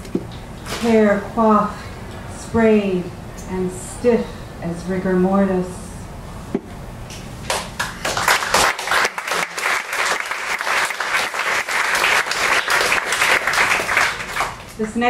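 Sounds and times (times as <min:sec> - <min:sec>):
audience applauding: 0:07.5 - 0:14.8.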